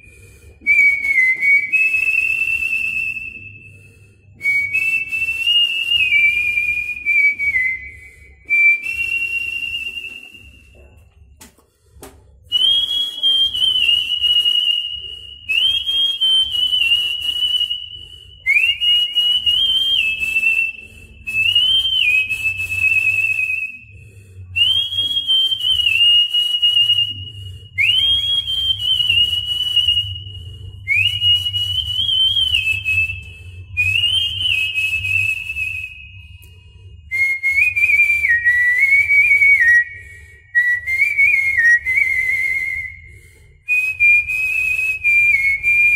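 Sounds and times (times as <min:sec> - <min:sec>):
person whistling a melody: 0:00.0 - 0:11.0, 0:12.4 - 0:45.9.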